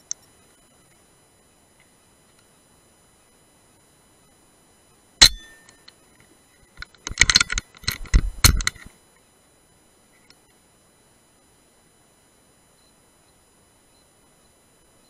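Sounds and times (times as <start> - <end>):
silenced air rifle shot: 5.2 - 5.8
brief metallic ring: 5.2 - 5.9.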